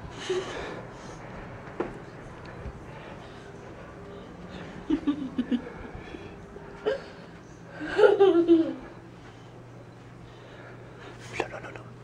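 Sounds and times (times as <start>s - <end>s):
small child giggling: 7.8s - 9.0s.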